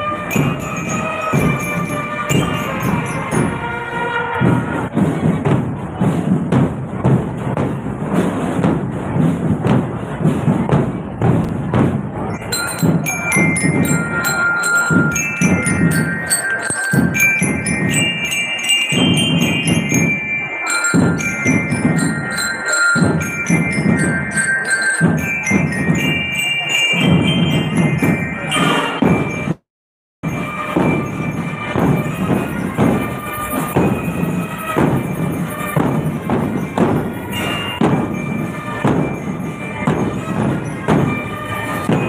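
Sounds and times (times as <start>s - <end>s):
bell lyre melody: 0.0s - 4.3s, 12.3s - 29.6s, 30.2s - 42.0s
marching drums: 0.0s - 29.6s, 30.2s - 42.0s.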